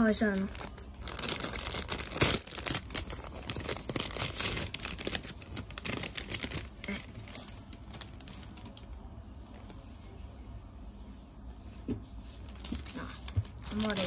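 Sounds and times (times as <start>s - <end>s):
plastic packaging tearing and crinkling: 0.0s - 9.7s, 12.4s - 14.0s.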